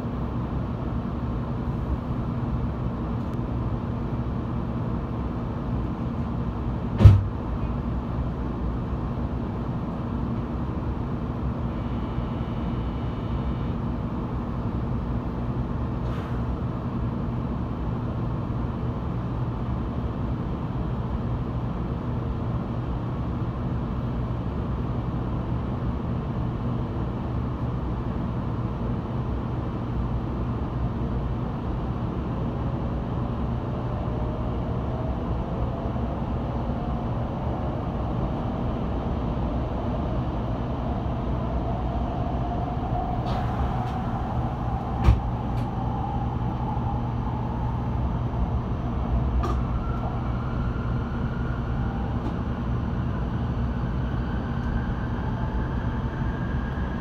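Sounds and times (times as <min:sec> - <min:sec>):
steady train interior hum: 0:00.0 - 0:57.0
sharp knock: 0:07.0 - 0:07.3.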